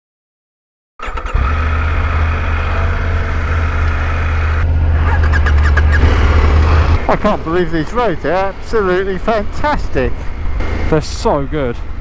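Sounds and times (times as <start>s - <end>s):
motorcycle engine droning: 1.0s - 9.2s.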